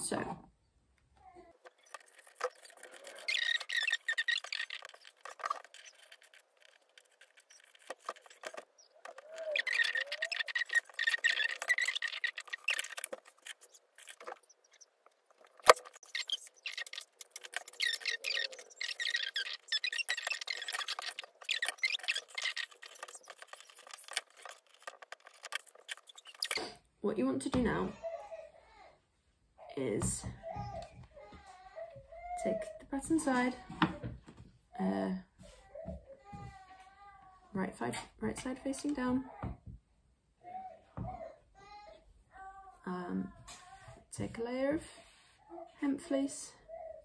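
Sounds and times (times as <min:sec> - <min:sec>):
thin high squeak: 0:01.7 - 0:26.8.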